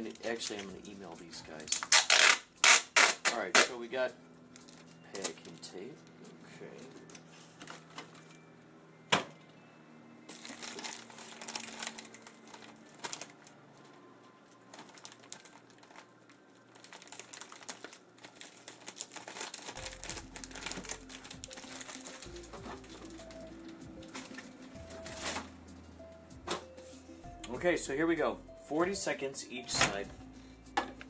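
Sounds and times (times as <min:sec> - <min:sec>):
packaging crinkling and rustling: 0:00.0 - 0:03.8, 0:04.6 - 0:06.1, 0:06.8 - 0:08.5, 0:10.3 - 0:25.5.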